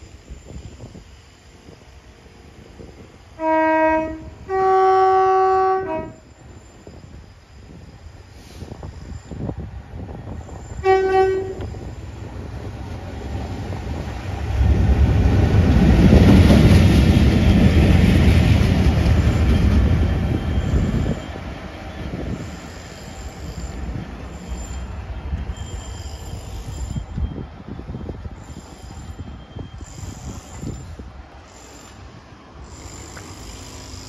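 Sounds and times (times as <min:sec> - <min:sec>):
diesel locomotive engine: 0:00.0 - 0:34.0
locomotive horn: 0:03.4 - 0:06.2, 0:10.8 - 0:11.7.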